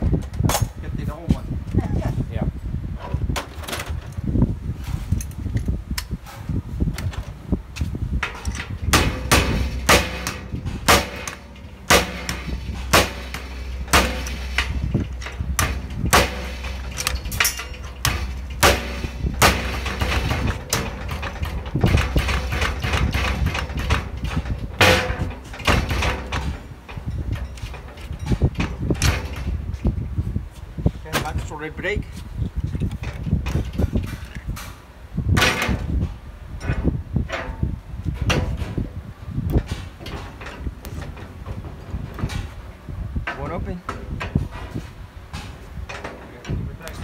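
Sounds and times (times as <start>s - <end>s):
steady low hum: 4.0s - 47.0s
metallic knocks and clanks: 4.9s - 30.1s, 32.7s - 47.0s.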